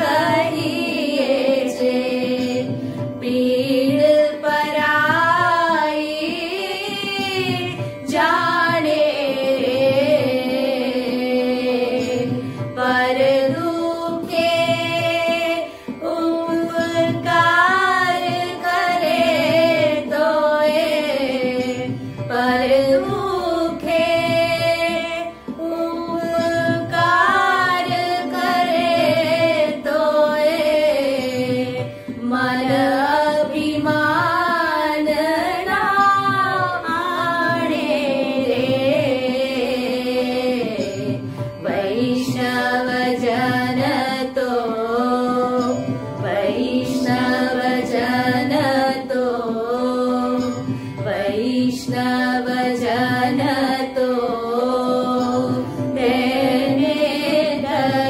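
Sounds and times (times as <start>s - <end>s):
women singing devotional song: 0.0s - 58.0s.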